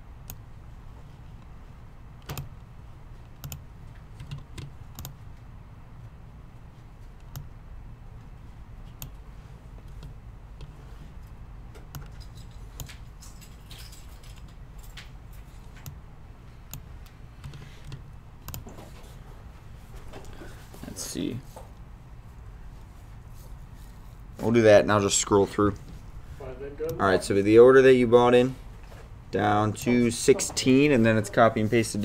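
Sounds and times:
steady low hum: 0.0s - 32.0s
keyboard and mouse clicks: 2.2s - 5.4s, 7.2s - 7.5s, 9.8s - 13.1s, 14.3s - 16.0s, 16.7s - 18.8s.

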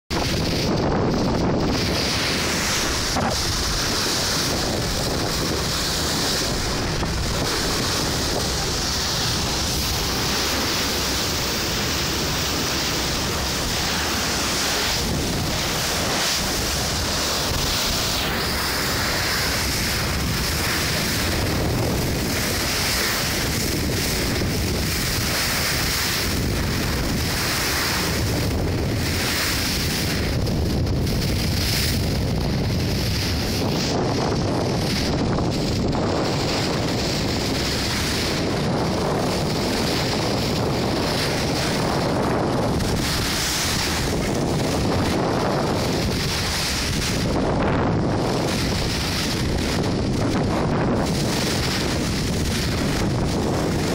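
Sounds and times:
water rushing along boat hull: 0.0s - 53.9s
wind buffeting microphone: 0.1s - 53.9s.

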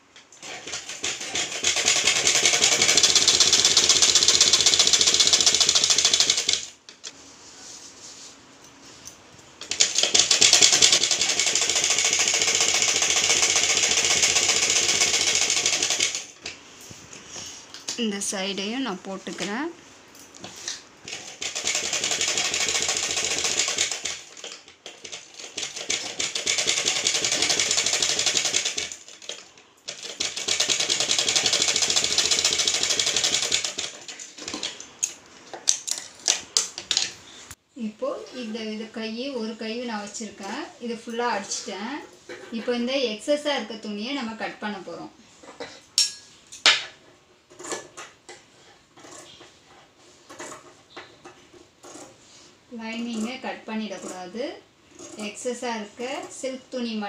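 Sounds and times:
sewing machine stitching: 0.4s - 6.7s, 9.6s - 16.4s, 21.1s - 34.8s, 51.8s - 52.2s, 54.9s - 56.4s.

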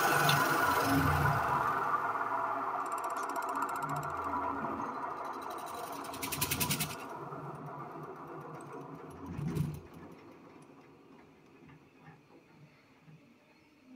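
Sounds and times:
polishing machine humming: 0.0s - 2.8s
rapid rattling: 5.0s - 11.1s.

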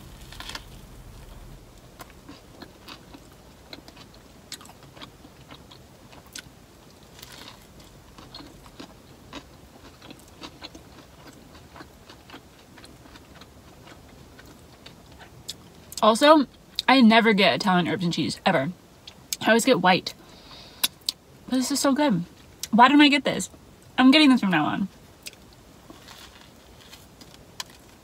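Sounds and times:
person chewing sandwich: 0.1s - 16.0s, 25.2s - 28.0s.

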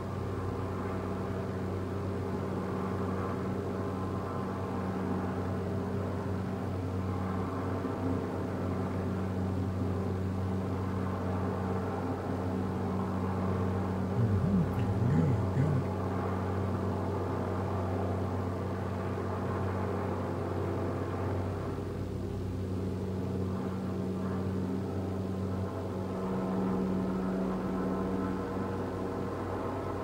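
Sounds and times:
engine droning: 12.8s - 16.4s.

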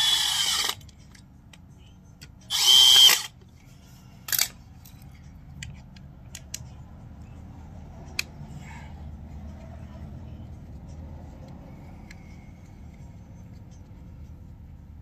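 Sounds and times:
cordless drill driving a screw: 0.0s - 0.8s, 2.5s - 3.3s.

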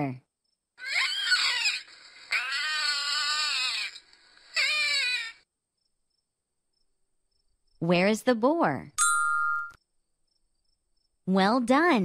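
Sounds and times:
otter squealing: 0.8s - 4.0s.

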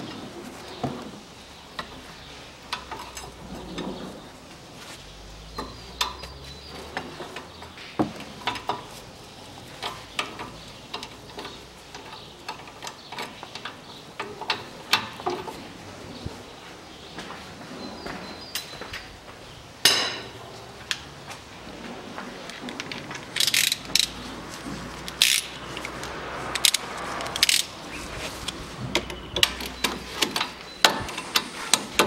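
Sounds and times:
metallic wrench clicks and clinks: 23.4s - 24.1s, 25.1s - 25.5s.

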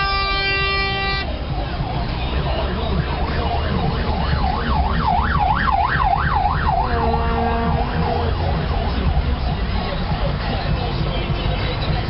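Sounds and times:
car road and engine rumble: 0.0s - 12.0s
siren sweeping up and down: 3.0s - 9.4s.

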